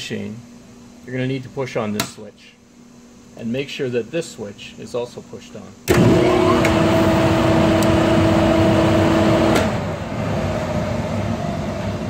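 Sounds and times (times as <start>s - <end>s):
fan air rush: 0.0s - 12.0s
motor hum: 5.8s - 11.3s.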